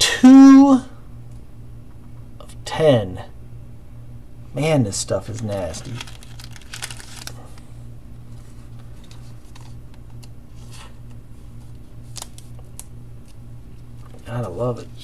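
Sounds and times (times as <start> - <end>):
steady low hum: 0.0 - 15.0
cards clicking and rustling: 5.2 - 7.7, 8.3 - 14.2.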